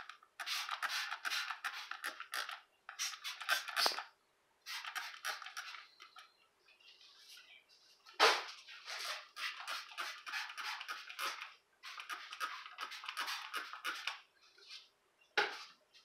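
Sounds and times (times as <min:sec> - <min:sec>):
trigger spray bottle hissing: 0:00.4 - 0:04.1, 0:04.7 - 0:05.8, 0:09.4 - 0:14.2.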